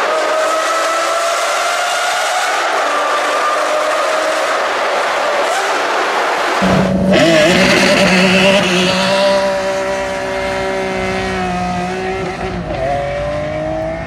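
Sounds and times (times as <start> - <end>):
car engine accelerating hard: 6.6 - 14.0.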